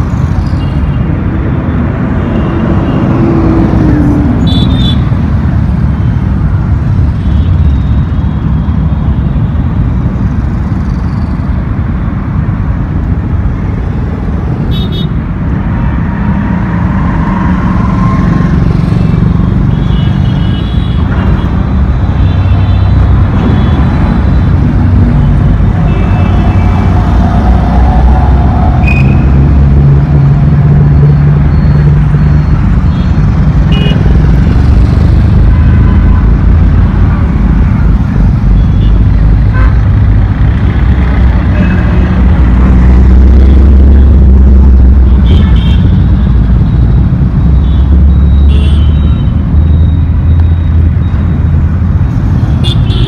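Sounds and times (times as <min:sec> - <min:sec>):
heavy road traffic: 0:00.0 - 0:53.0.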